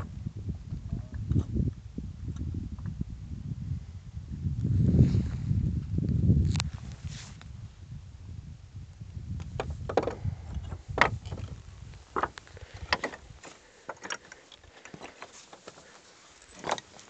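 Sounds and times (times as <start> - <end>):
wind buffeting microphone: 0.0 - 13.5
sharp clicks and knocks: 9.4 - 15.8.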